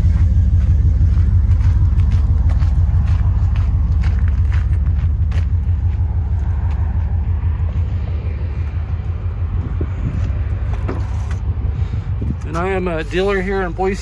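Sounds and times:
v eight engine idling: 0.0 - 14.0.

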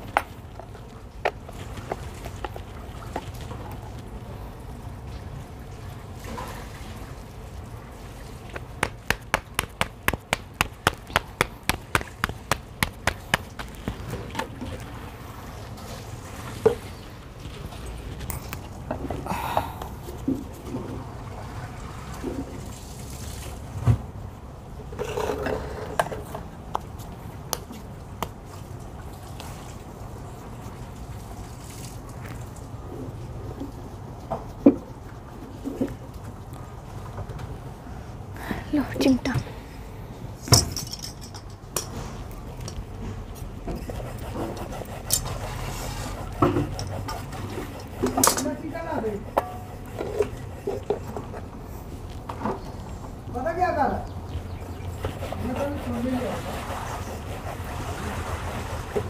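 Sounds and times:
dough slapped between palms: 8.6 - 14.0.

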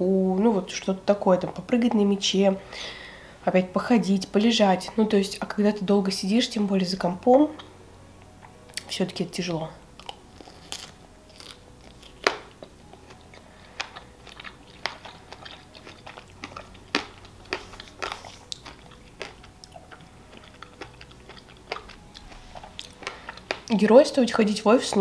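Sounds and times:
wet chewing mouth clicks: 10.0 - 23.7.

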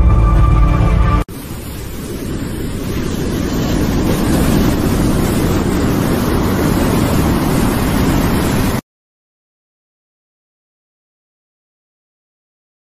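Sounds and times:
low rushing roar: 0.0 - 8.8.

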